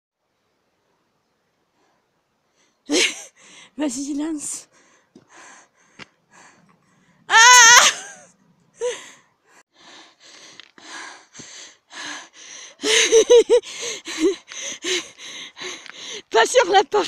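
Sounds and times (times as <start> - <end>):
woman squealing: 7.3 - 8.2
laughter: 12.8 - 14.4.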